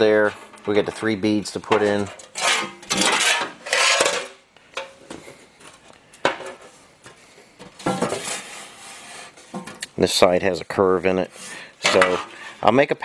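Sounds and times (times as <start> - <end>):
steel panels scraping on workbench: 0.0 - 4.4, 7.8 - 9.8, 11.1 - 12.6.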